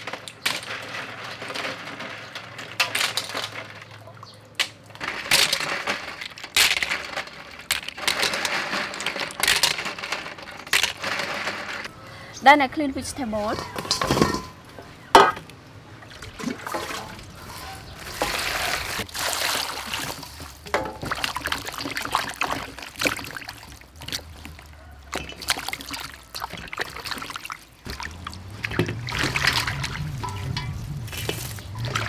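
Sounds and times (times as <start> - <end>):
water sloshing in a metal bowl: 0.0 - 12.0, 13.3 - 32.0
water dripping: 19.1 - 32.0.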